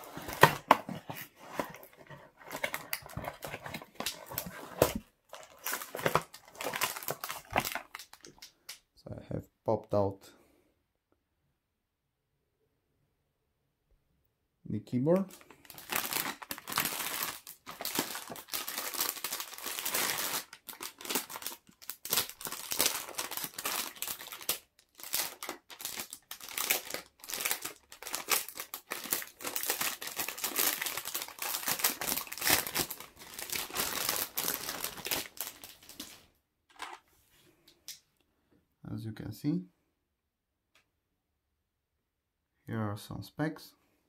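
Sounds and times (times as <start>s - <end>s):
packaging wrap crinkling: 0.0s - 8.8s, 15.2s - 37.0s.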